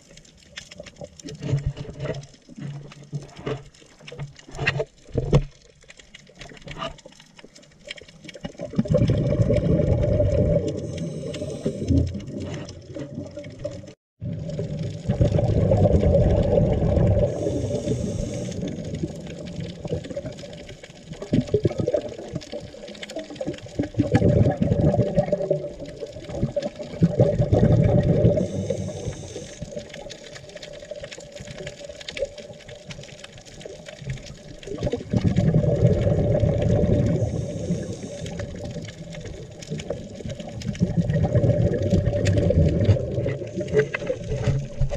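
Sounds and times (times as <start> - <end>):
bubbling exhale underwater: 8.3 - 30.2, 34.2 - 44.9
regulator inhale hiss: 10.8 - 12.0, 17.2 - 18.7, 28.3 - 29.8, 37.2 - 38.6.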